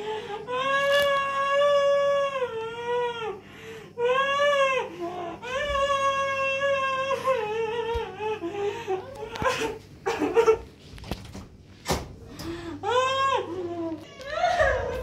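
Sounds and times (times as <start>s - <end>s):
small child crying: 12.8s - 15.0s.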